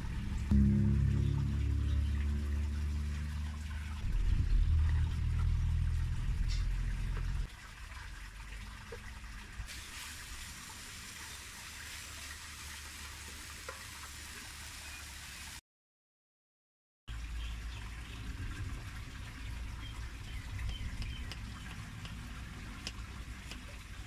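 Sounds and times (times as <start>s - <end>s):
loud low rumble: 0.0s - 7.5s
meat sizzling in a wok: 9.7s - 14.8s.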